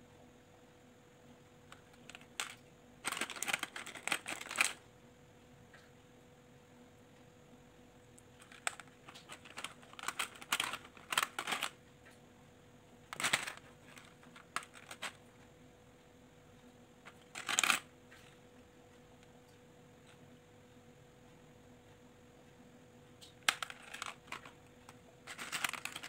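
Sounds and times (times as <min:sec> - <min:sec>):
plastic beads clicking and rattling: 0:01.7 - 0:04.8, 0:08.4 - 0:11.8, 0:13.1 - 0:15.2, 0:17.0 - 0:17.9, 0:23.3 - 0:26.0.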